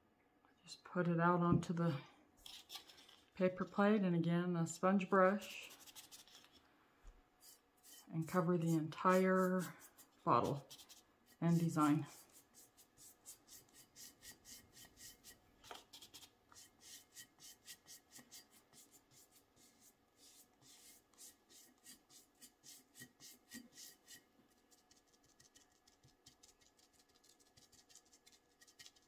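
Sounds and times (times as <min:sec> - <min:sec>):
sponge brush swishing strokes: 0:05.4 - 0:06.6, 0:07.4 - 0:25.8.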